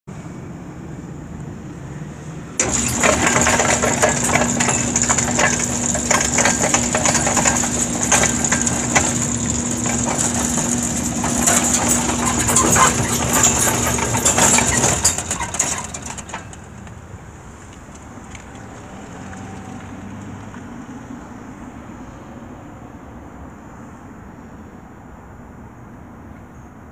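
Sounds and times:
gate motor humming and whining: 2.6 - 16.8
gate rattling and clattering: 2.6 - 16.9.

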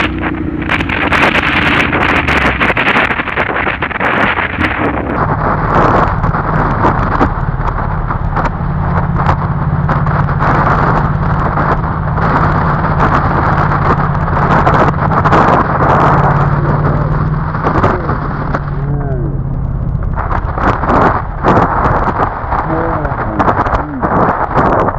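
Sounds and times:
motorcycle engine cruising: 0.0 - 24.9
wind rush on microphone: 0.0 - 24.9.

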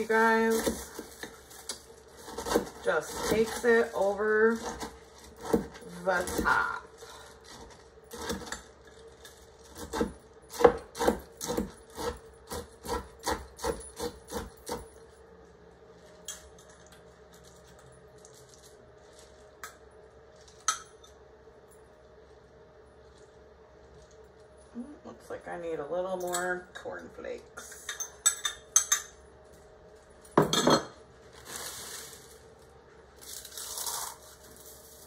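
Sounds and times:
faint steady hum: 0.0 - 35.0
utensil scraping corn flakes in dish: 33.2 - 35.0.

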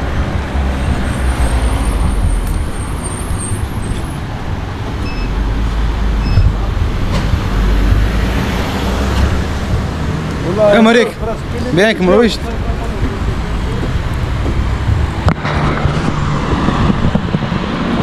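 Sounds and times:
short electronic beeps: 5.0 - 5.4, 6.2 - 6.6.

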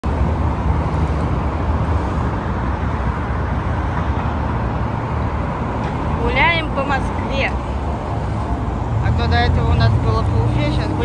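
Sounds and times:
cars and buses driving past: 0.0 - 11.0.

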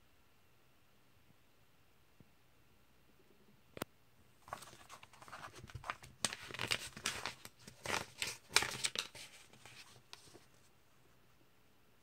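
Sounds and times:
comic book crinkling and rustling: 4.4 - 10.7.

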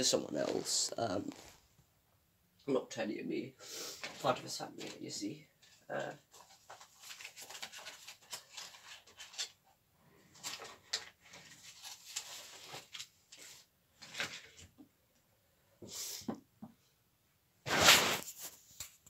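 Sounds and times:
rustling of handled objects: 0.1 - 1.8, 3.9 - 14.9.

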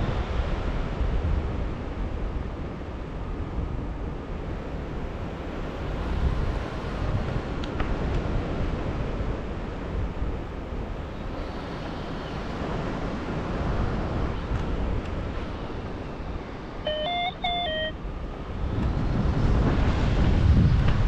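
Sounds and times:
wind rumbling over microphone: 0.0 - 16.9, 18.0 - 21.0
electronic beeps: 16.8 - 18.0.

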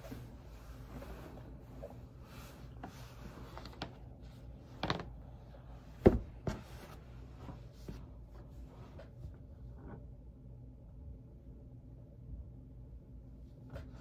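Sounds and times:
cloth rustling: 0.0 - 9.2.

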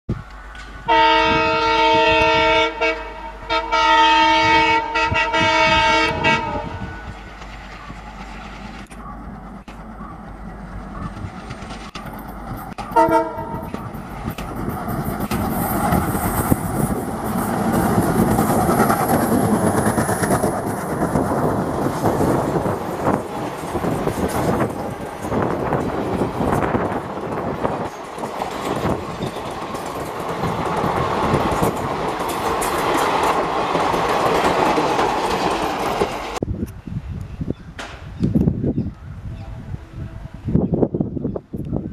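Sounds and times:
train rumble and wheel clatter: 0.1 - 41.9
locomotive horn blast: 0.8 - 7.2, 12.9 - 13.8.

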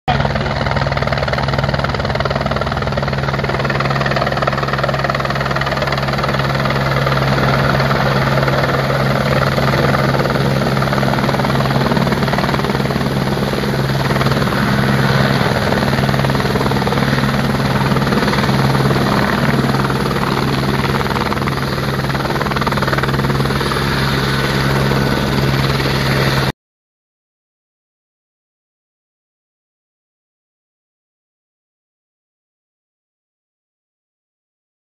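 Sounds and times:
helicopter engine drone: 0.1 - 26.6
helicopter rotor beat: 0.1 - 26.6.

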